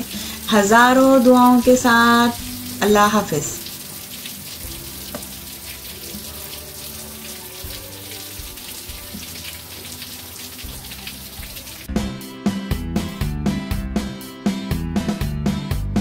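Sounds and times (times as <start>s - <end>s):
steady rain falling: 0.0s - 11.9s
music: 0.0s - 16.0s.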